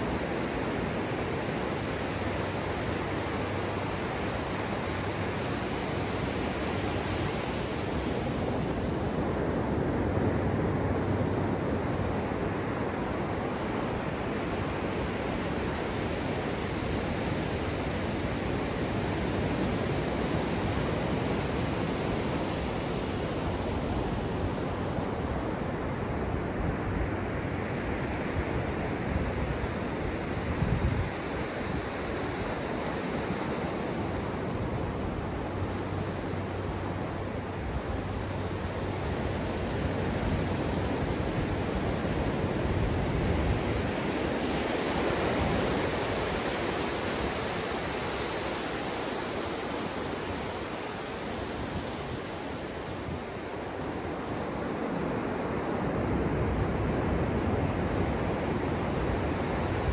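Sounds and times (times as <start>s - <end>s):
ocean surf breaking on beach: 0.0s - 59.9s.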